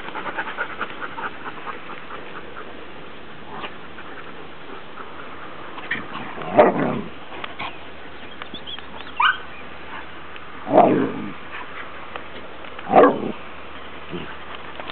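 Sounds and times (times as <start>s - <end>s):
dog yelping: 9.2s - 9.5s.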